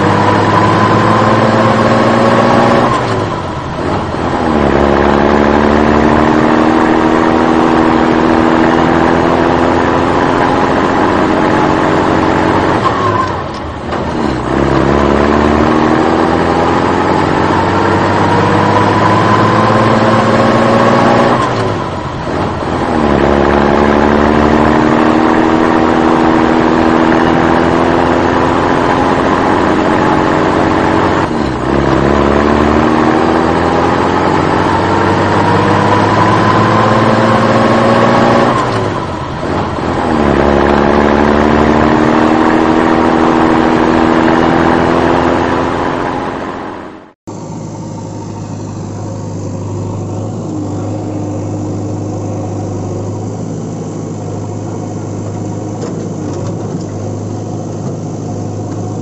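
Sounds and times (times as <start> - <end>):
truck engine accelerating: 0.0 - 59.0.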